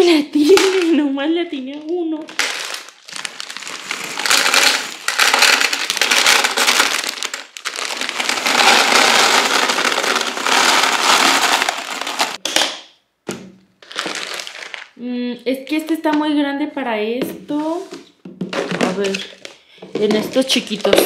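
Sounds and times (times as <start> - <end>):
dry pasta pouring into plastic canister: 2.3 - 12.4, 13.8 - 14.9.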